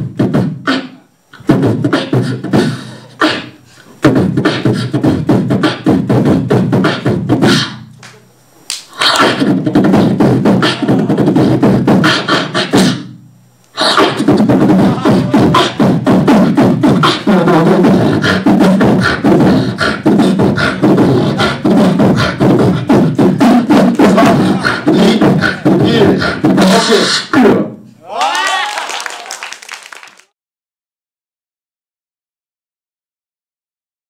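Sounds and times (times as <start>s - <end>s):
person beatboxing: 0.0s - 27.8s
heavy bass line: 4.0s - 7.8s, 9.2s - 27.8s.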